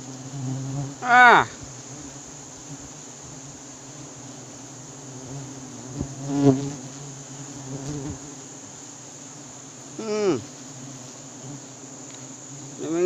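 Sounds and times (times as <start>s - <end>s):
bees buzzing: 0.0s - 13.0s
short calls: 1.0s - 1.6s, 10.0s - 10.5s.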